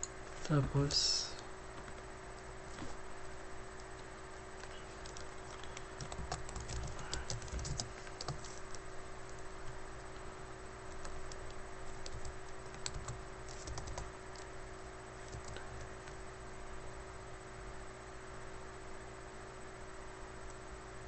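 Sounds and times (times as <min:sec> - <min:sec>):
low electrical hum: 0:00.0 - 0:21.0
computer keyboard typing: 0:04.6 - 0:09.8, 0:10.9 - 0:14.5, 0:15.2 - 0:16.2.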